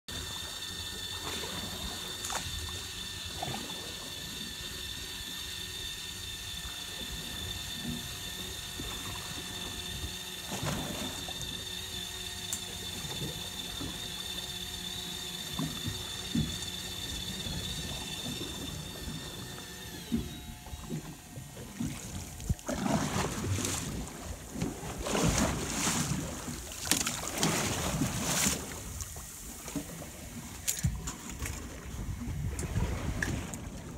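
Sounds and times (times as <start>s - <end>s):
electric fishing reel whine: 0.1s - 33.9s.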